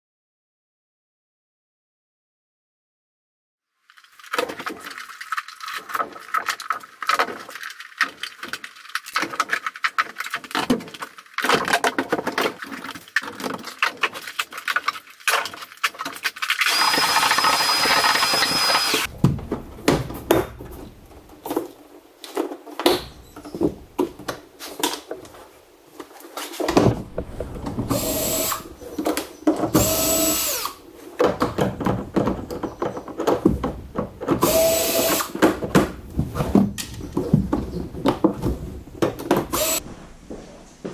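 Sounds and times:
cordless drill whining: 0:16.6 - 0:19.1, 0:27.8 - 0:28.7, 0:29.8 - 0:30.8, 0:34.4 - 0:35.3, 0:39.5 - 0:39.8
vacuum cleaner running: 0:16.8 - 0:19.0, 0:27.8 - 0:28.6
tools and parts clattering: 0:31.0 - 0:39.8.

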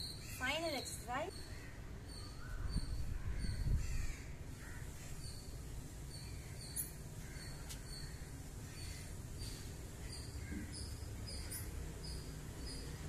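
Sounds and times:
crows cawing faintly: 0:01.5 - 0:05.4, 0:06.3 - 0:11.7.

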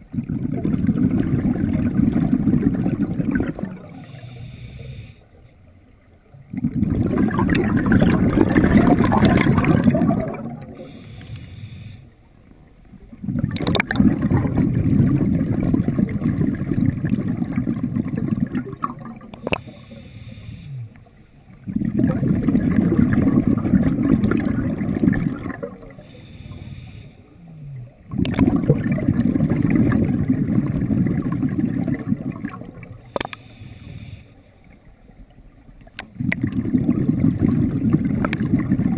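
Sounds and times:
underwater regulator breathing bubbles: 0:06.5 - 0:12.1, 0:13.2 - 0:21.0, 0:21.6 - 0:27.2, 0:28.1 - 0:34.3.

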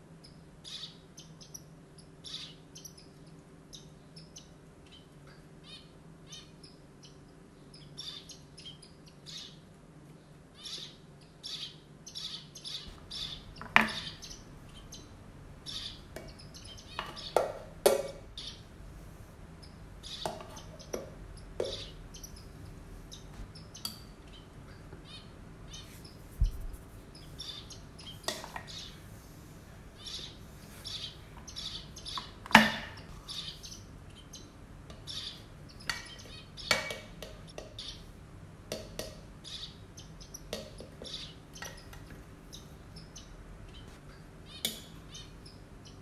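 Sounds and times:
low steady hum: 0:00.0 - 0:46.0
small birds chirping: 0:00.0 - 0:46.0
sharp knocks: 0:16.2 - 0:18.3.

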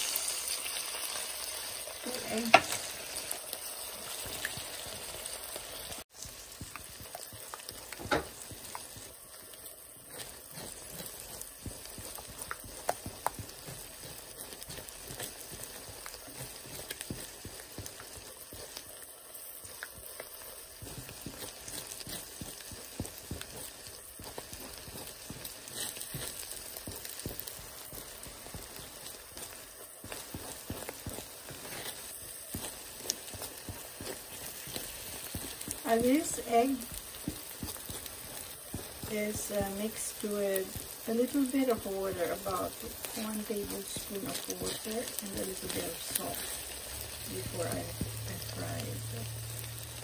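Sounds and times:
eggs sizzling in a pan: 0:00.0 - 0:50.0
spatula tapping a pan: 0:06.2 - 0:09.1.

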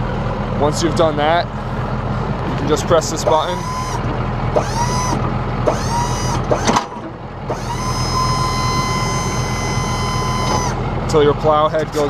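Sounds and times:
truck engine idling: 0:00.0 - 0:12.0
hydraulic pump motor whining: 0:02.3 - 0:11.0
clunk: 0:02.4 - 0:07.6, 0:10.4 - 0:10.7.

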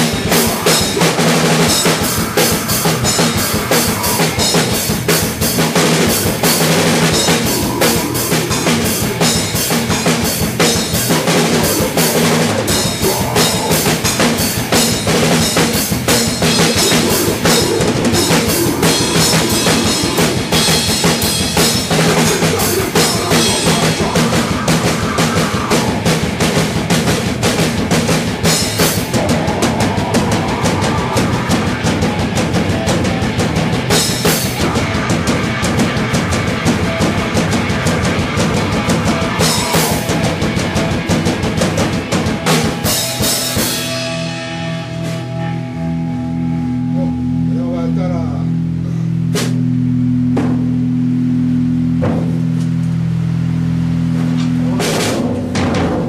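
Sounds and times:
drum kit played hard: 0:00.0 - 0:47.0, 0:49.2 - 0:56.0
person singing into microphone: 0:22.0 - 0:26.0.

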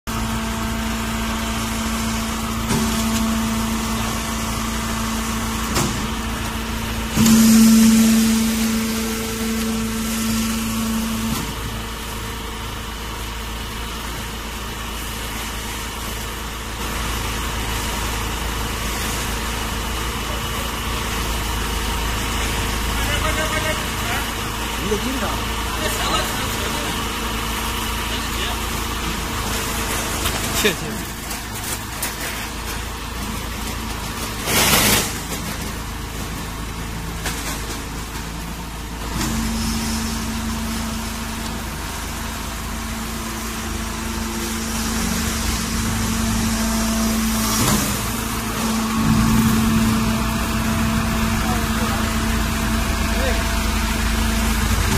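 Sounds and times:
machinery humming: 0:00.1 - 0:54.9
baler motor droning: 0:00.2 - 0:13.6, 0:39.3 - 0:54.9
steady whine: 0:00.2 - 0:13.8, 0:39.2 - 0:54.9
steady humming tone: 0:01.6 - 0:13.2, 0:39.2 - 0:54.9.

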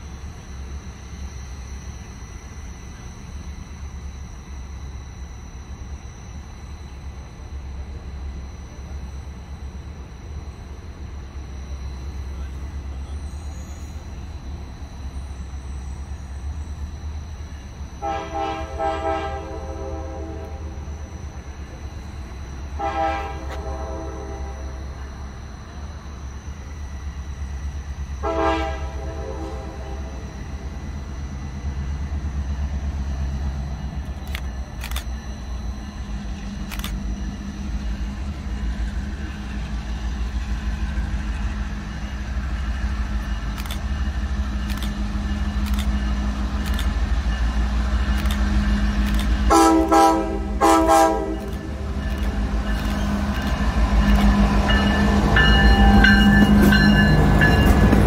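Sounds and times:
diesel locomotive engine rumble: 0:00.0 - 0:58.0
train horn blasts: 0:18.0 - 0:20.8, 0:22.8 - 0:24.8, 0:28.2 - 0:30.4, 0:49.5 - 0:51.8.

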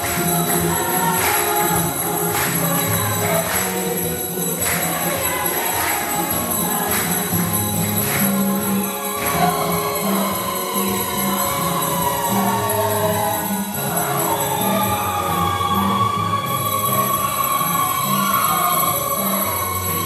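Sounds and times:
hand clapping: 0:00.0 - 0:15.5
choir and congregation singing: 0:00.0 - 0:20.0
steady percussive beat: 0:00.0 - 0:20.0.

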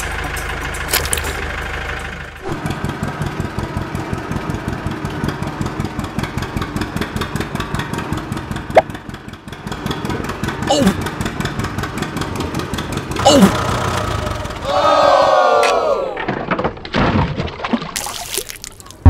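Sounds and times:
tractor engine chugging: 0:00.0 - 0:15.2.

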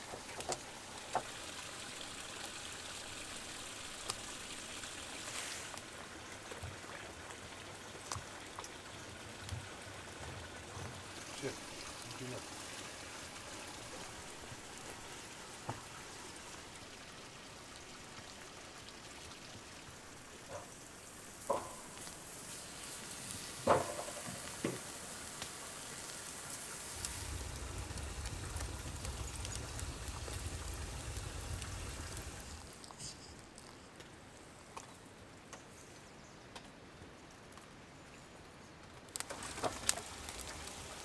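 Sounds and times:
meat sizzling: 0:00.0 - 0:33.7, 0:39.2 - 0:41.0
steak knocking on grill grate: 0:21.4 - 0:22.0, 0:23.6 - 0:24.8
low rumble: 0:26.8 - 0:32.8.

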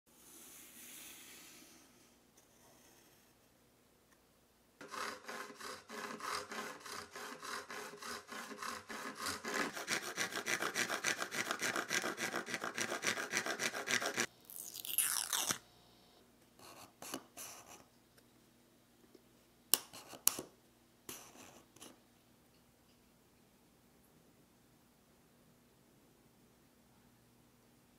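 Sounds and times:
hand saw cutting wood: 0:04.8 - 0:14.3.

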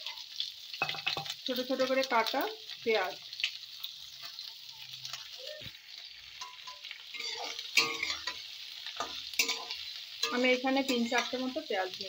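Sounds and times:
onions sizzling in hot oil: 0:00.0 - 0:12.0
utensil scraping and clattering on pan: 0:00.8 - 0:01.4, 0:06.4 - 0:11.4.

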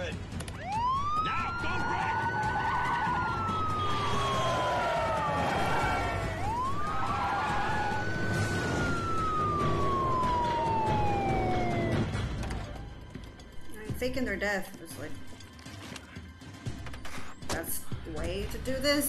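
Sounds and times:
police siren wailing: 0:00.4 - 0:13.1.

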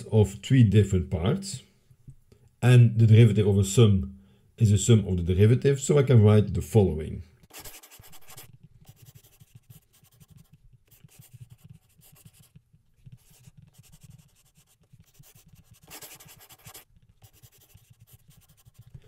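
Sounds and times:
stylus scratching and tapping: 0:07.4 - 0:19.0.

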